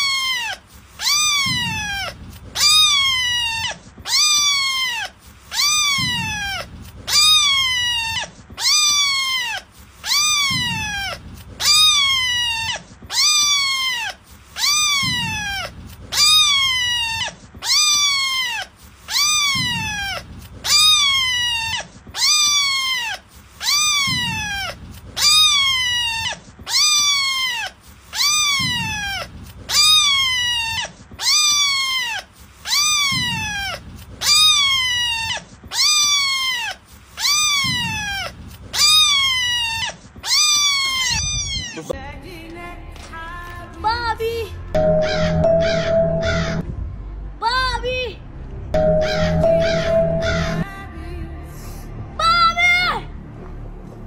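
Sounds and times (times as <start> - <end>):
cat-like meow: 0.0 - 42.0.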